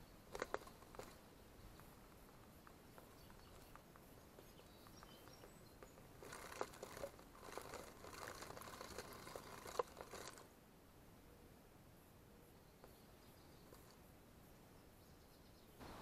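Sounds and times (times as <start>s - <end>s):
animal rustling in seeds: 0.2s - 10.5s.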